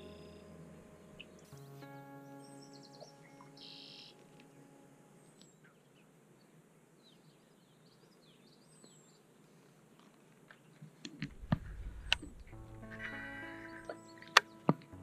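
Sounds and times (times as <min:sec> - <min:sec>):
held musical chord: 0:00.0 - 0:05.4, 0:11.7 - 0:15.0
birds chirping: 0:00.0 - 0:09.3, 0:10.6 - 0:15.0.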